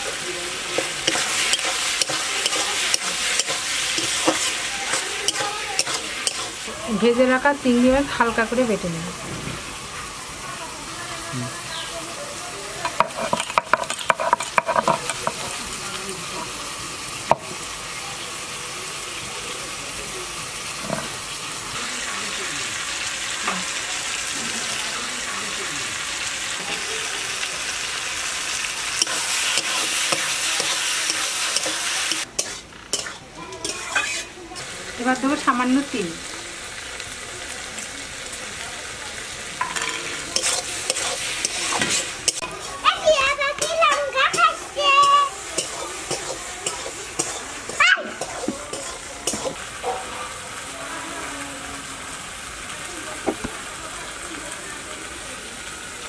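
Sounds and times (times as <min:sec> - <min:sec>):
vegetables frying with sizzle: 0:00.0 - 0:56.0
metal spatula scraping pan: 0:00.1 - 0:06.6, 0:12.8 - 0:15.6, 0:29.0 - 0:34.4, 0:39.6 - 0:42.8
stone scraping grind: 0:32.4 - 0:34.3.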